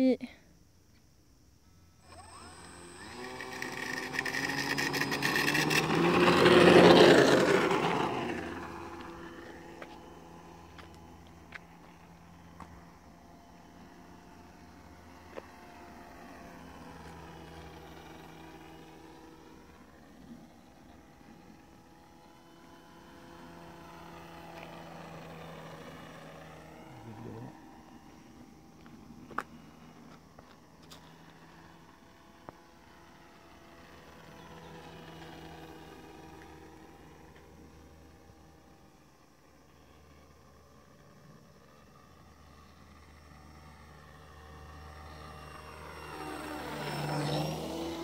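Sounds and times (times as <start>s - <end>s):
model plane electric motor whine: 1.6s - 48.0s.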